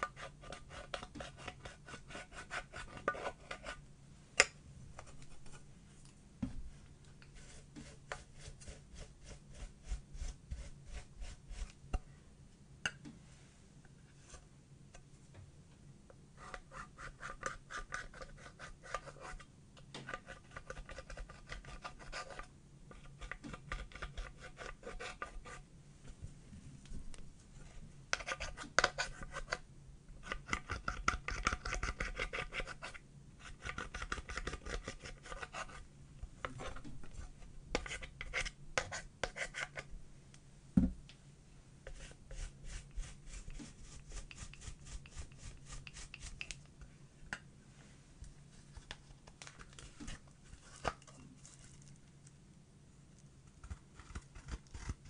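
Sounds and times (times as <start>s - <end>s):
tool scratching eyeshadow powder: 0.0s - 3.8s, 7.3s - 11.7s, 16.4s - 19.4s, 20.1s - 25.6s, 30.2s - 35.8s, 41.9s - 46.5s.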